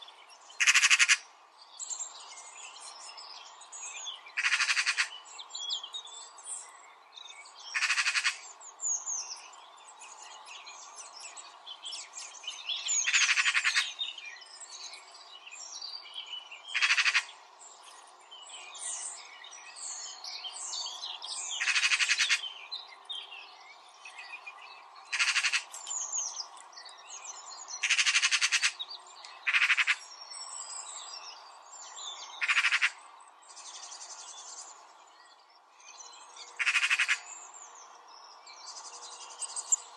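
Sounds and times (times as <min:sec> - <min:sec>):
birds chirping: 0:00.0 - 0:39.9
rapidly pulsing bird call: 0:00.6 - 0:01.2, 0:04.4 - 0:05.1, 0:25.1 - 0:25.7, 0:27.8 - 0:28.8, 0:29.5 - 0:30.1, 0:32.4 - 0:33.0, 0:36.6 - 0:37.3.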